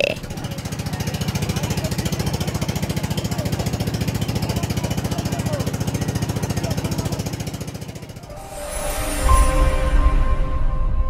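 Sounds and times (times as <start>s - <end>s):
motorboat engine chugging: 0.0s - 8.3s.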